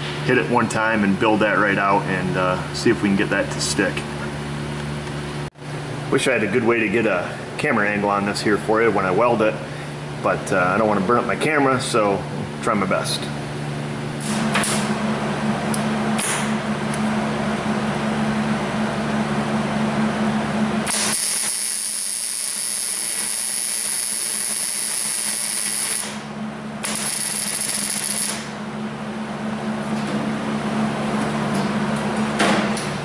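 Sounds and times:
welding arc crackling and sizzling: 0:20.9 - 0:26.2, 0:26.8 - 0:28.4.

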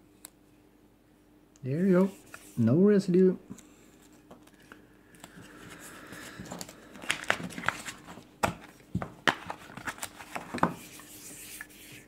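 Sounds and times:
packaging rustling: 0:04.0 - 0:11.1.

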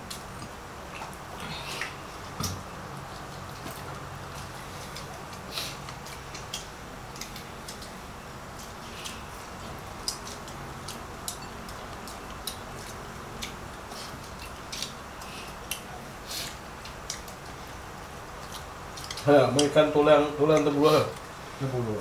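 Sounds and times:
low room hum: 0:00.0 - 0:22.0
light clicks and taps on plates: 0:08.6 - 0:13.6, 0:18.4 - 0:19.8.

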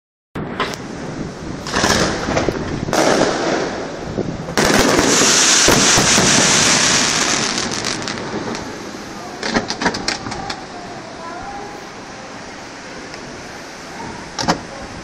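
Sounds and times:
fireworks bangs: 0:01.6 - 0:11.0
fireworks crackle: 0:01.6 - 0:12.4.

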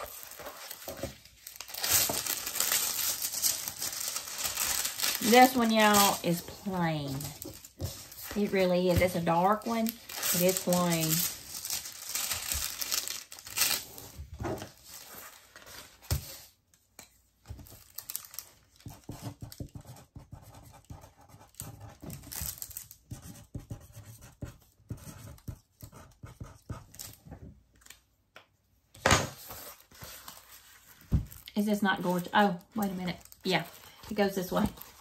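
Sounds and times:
packaging rustling and crinkling: 0:00.0 - 0:16.4, 0:17.6 - 0:18.8, 0:32.4 - 0:35.0.

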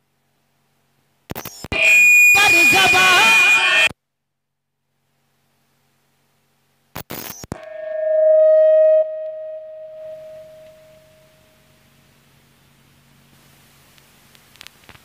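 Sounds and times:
steady ringing tone: 0:07.6 - 0:11.7.

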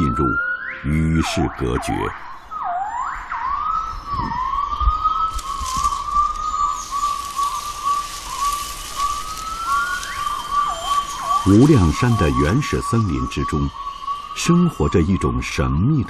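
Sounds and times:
gibbon whooping calls: 0:00.0 - 0:15.6
steady high hiss: 0:05.3 - 0:16.0.

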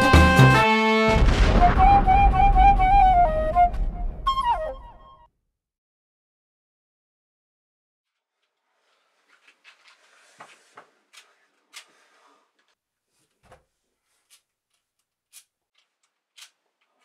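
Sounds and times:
faint rustling: 0:08.1 - 0:14.5.

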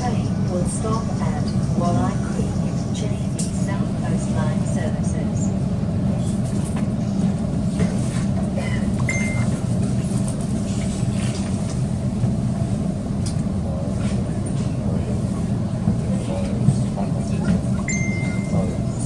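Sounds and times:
train rumbling on rails: 0:00.0 - 0:19.0
brief high tone: 0:17.8 - 0:19.0.

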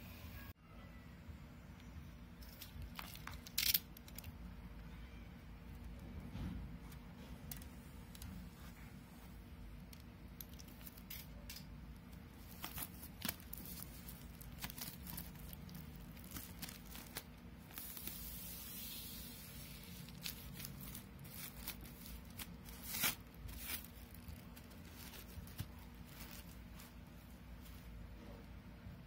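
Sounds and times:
low steady hum: 0:00.0 - 0:29.0
plastic shrink wrap crinkling: 0:10.4 - 0:28.0.

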